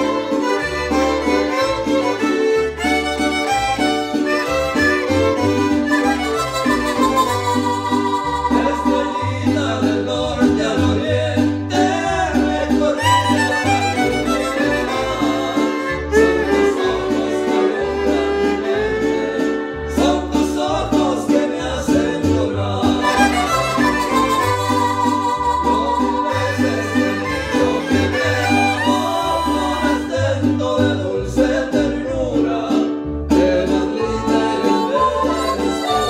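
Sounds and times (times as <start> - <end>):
violins playing a tune: 0.0 - 9.0, 13.0 - 20.1, 23.0 - 30.2, 34.1 - 36.0
plucked bass line: 0.0 - 36.0
strummed chords: 0.0 - 36.0.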